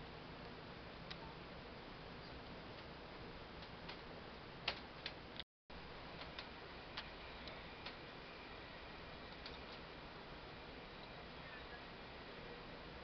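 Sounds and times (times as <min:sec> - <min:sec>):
train carriage running noise: 0:02.4 - 0:13.0
light clicks and ticks: 0:03.6 - 0:05.2, 0:06.2 - 0:08.0.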